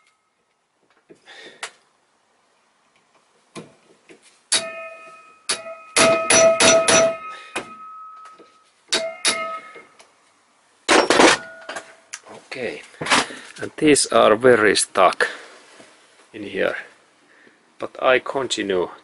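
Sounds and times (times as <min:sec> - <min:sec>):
hammer striking steel punch: 0:04.5 - 0:08.3, 0:08.9 - 0:09.8.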